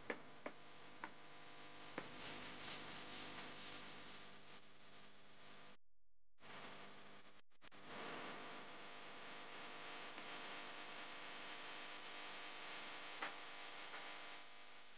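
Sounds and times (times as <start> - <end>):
faint steady hiss: 0.0 - 5.6.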